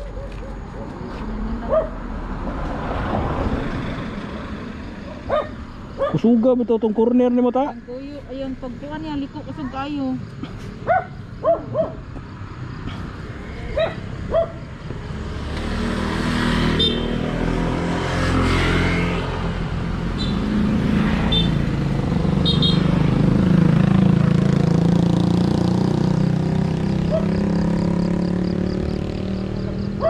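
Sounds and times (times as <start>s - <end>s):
dog barking: 0.0s - 1.0s, 1.6s - 2.0s, 4.4s - 6.3s, 10.8s - 12.1s, 13.7s - 14.7s, 27.1s - 27.4s
motorcycles riding past: 0.0s - 30.0s.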